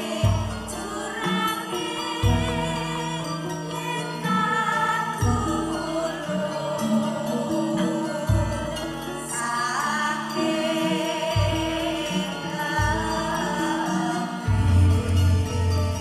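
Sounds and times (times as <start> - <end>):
female choir singing: 0.0 - 16.0
metallophone notes: 0.0 - 16.0
deep low strokes: 14.5 - 16.0.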